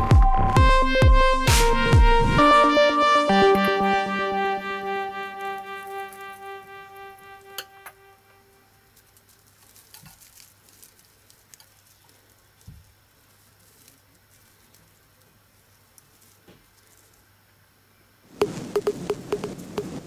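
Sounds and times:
wrapping clicks and rustles: 8.8s - 17.3s
loud crinkling and clicking: 8.9s - 17.3s.

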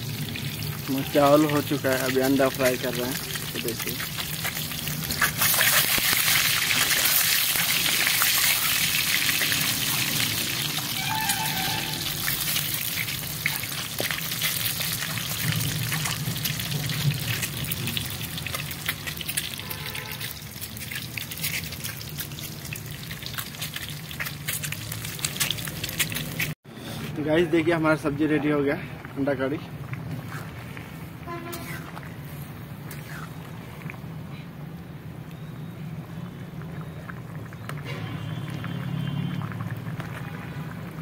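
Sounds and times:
eggs sizzling in hot oil: 0.0s - 26.6s, 36.8s - 41.0s.

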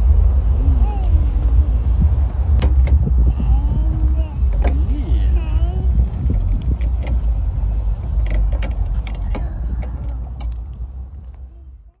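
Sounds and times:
low background rumble: 0.0s - 12.0s
light clicks and knocks: 8.2s - 11.4s.

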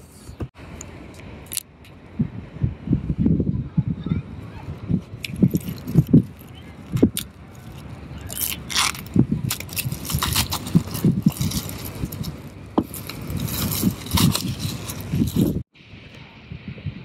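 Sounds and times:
plastic wrap crinkling: 5.2s - 15.6s.

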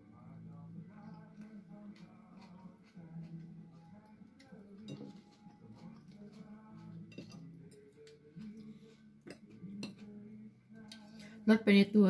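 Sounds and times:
fork clinking against plates: 4.4s - 10.2s.

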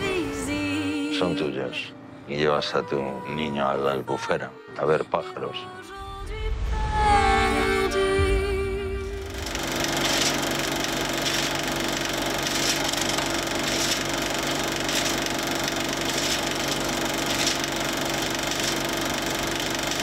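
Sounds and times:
film projector whirring: 9.3s - 20.0s
projector ticking: 9.3s - 20.0s.

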